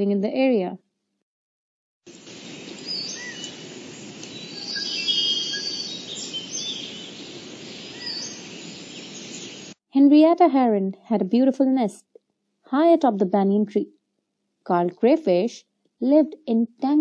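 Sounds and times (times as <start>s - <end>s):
birds chirping and trilling: 2.1s - 9.8s
outdoor background noise: 2.1s - 9.8s.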